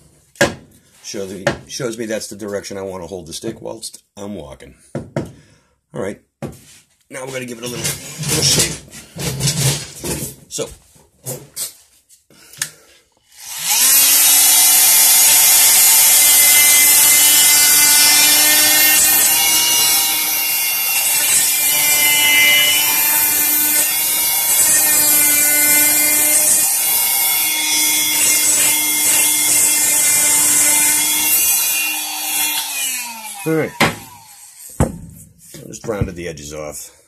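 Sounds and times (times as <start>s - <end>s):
power tool grinding wood: 13.3s - 34.9s.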